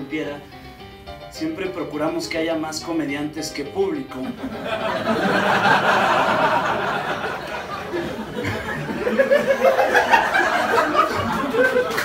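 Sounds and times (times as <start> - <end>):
small audience laughing: 4.4 - 12.0.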